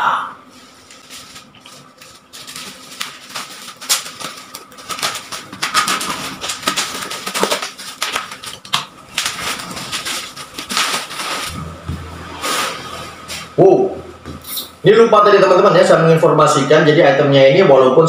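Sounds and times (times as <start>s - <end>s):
bubble wrap crinkling: 0.4s - 11.8s.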